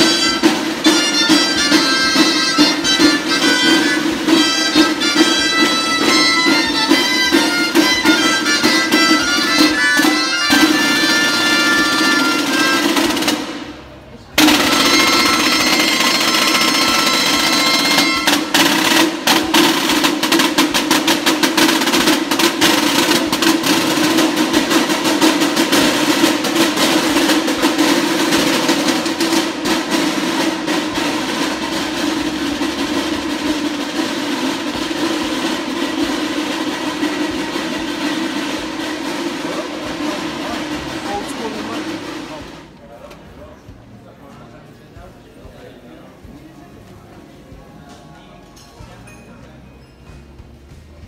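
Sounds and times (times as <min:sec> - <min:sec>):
piped melody: 0:00.0 - 0:42.6
snare drum rolls: 0:00.0 - 0:44.3.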